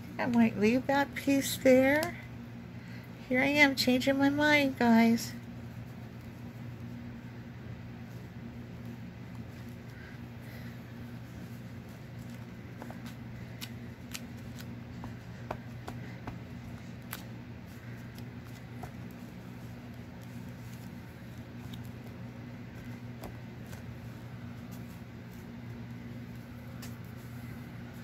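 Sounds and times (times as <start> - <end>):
steady low hum: 0.0 - 28.0
paper rustling: 11.2 - 25.6.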